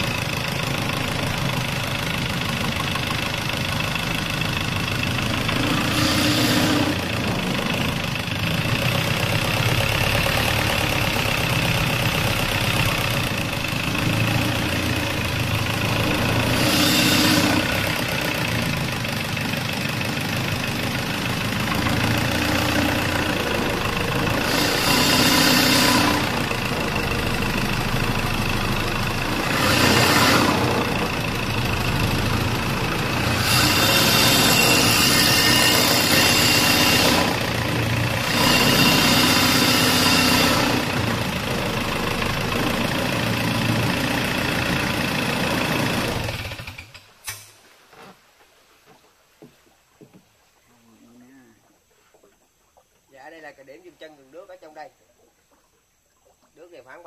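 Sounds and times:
boat motor running: 0.0 - 47.1.

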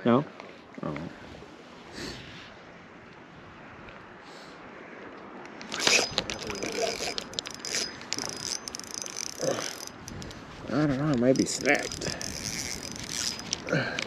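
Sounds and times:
fishing reel clicking and rattling: 5.6 - 10.4, 11.1 - 14.0.

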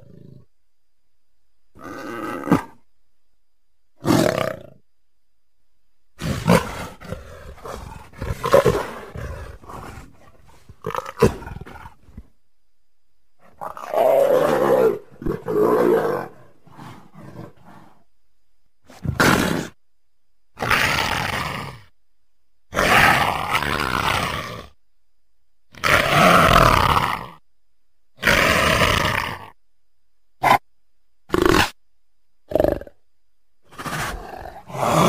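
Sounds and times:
leopard roaring: 1.8 - 2.8, 4.0 - 4.8, 6.2 - 12.2, 13.4 - 18.0, 18.9 - 19.8, 20.6 - 21.9, 22.7 - 24.8, 25.7 - 27.4, 28.2 - 29.6, 31.3 - 31.8, 32.5 - 33.0, 33.7 - 35.0.

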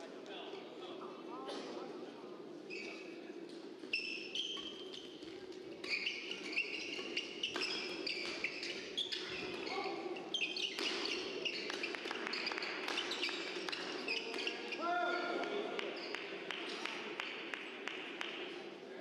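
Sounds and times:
shoes squeaking on court: 2.6 - 15.4.

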